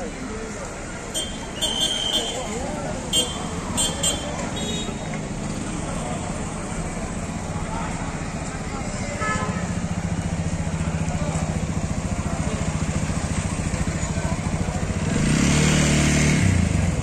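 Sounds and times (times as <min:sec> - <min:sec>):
street traffic: 0:00.0 - 0:17.0
motorcycle passing: 0:02.3 - 0:17.0
engine running close by: 0:05.2 - 0:17.0.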